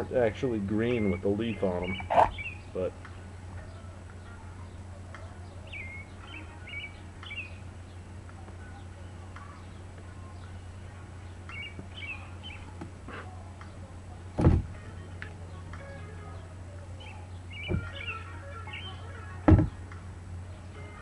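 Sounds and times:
small birds chirping: 0.0 - 21.0
steady low hum: 0.0 - 21.0
loud thump: 14.4 - 14.8, 17.7 - 17.9, 19.5 - 19.8.

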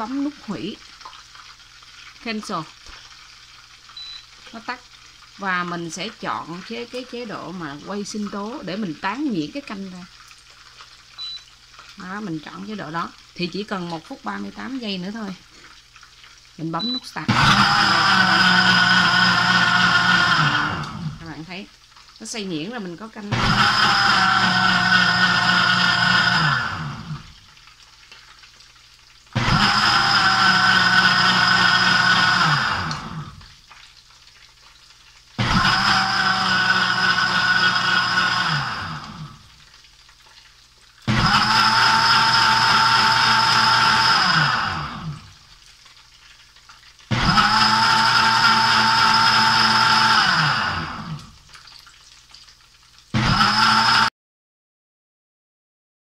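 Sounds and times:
blender motor running: 17.3 - 21.5, 23.3 - 27.4, 29.4 - 33.5, 35.4 - 39.5, 41.1 - 45.4, 47.1 - 51.4, 53.2 - 54.1.

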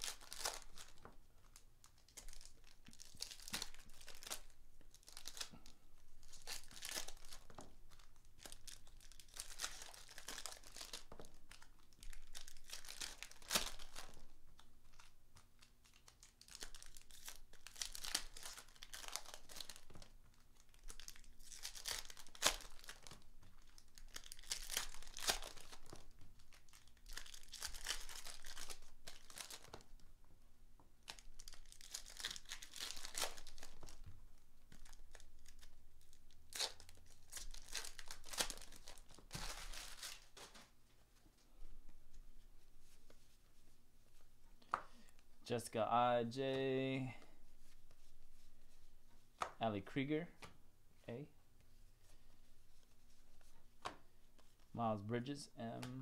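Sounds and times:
foil wrappers crinkling and tearing: 0.0 - 30.1, 31.0 - 40.8.

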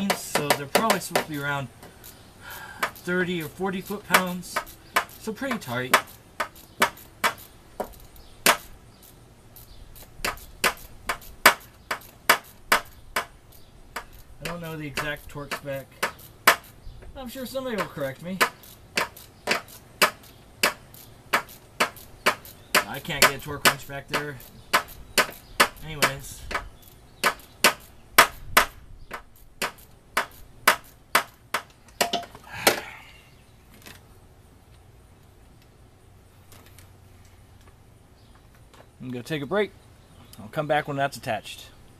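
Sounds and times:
ratchet clicking: 0.2 - 15.4, 18.0 - 28.0.

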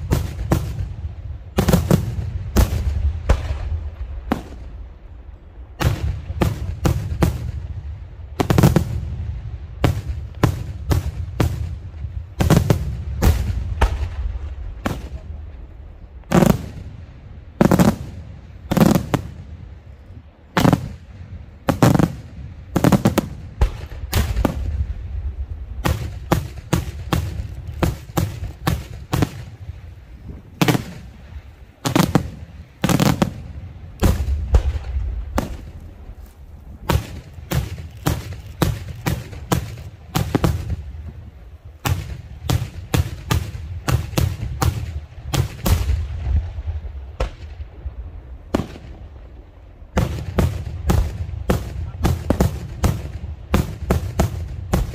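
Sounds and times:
fireworks bursting: 0.0 - 54.9
low rumble: 44.9 - 50.0.

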